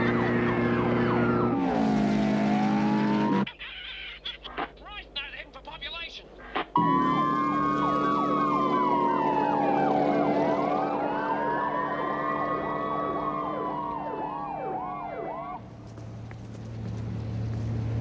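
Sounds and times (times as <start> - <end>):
fast whooping siren: 0.0 - 3.5, 6.8 - 15.6
police siren wailing: 0.0 - 3.5, 6.8 - 15.6.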